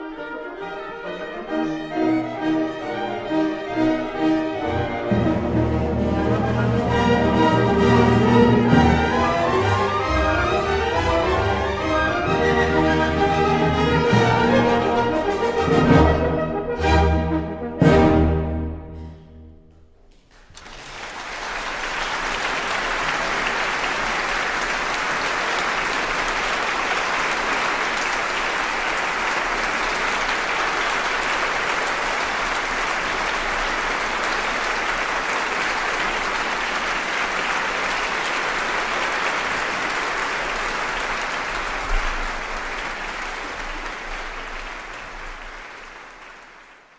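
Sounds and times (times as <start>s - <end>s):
audience applauding: 6.2s - 15.9s, 20.1s - 46.9s.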